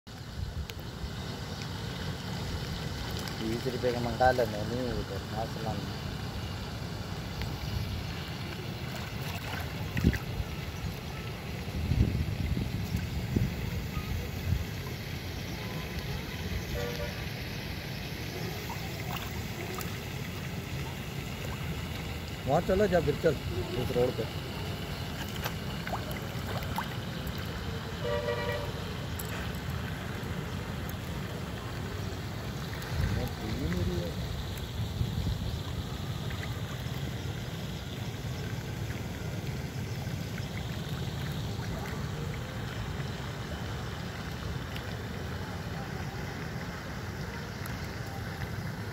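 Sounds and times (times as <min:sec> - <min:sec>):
small waves lapping on stony shore: 0:05.7 - 0:11.6, 0:15.3 - 0:48.9
wind rumble on microphone: 0:09.8 - 0:10.9, 0:11.6 - 0:14.8, 0:32.8 - 0:35.9
wind buffeting microphone: 0:11.6 - 0:14.7.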